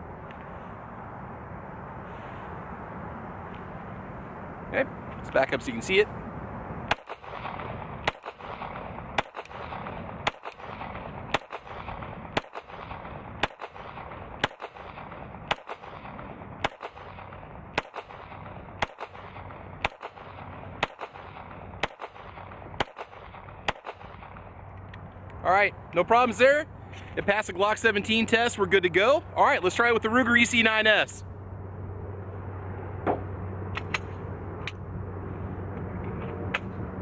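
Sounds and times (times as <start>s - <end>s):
pistol shots: 6.9s - 24.5s.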